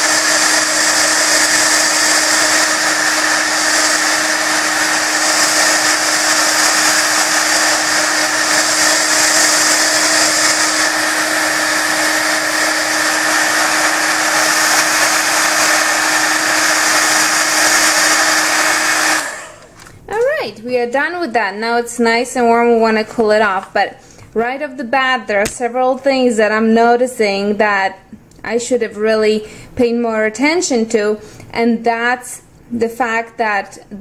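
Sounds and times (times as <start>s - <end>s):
heat gun buzzing air rush: 0.0s - 19.7s.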